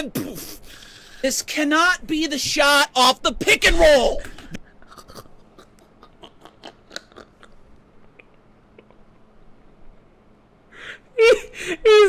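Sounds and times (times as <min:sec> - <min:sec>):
man stifling laughter: 0:05.6 - 0:07.6.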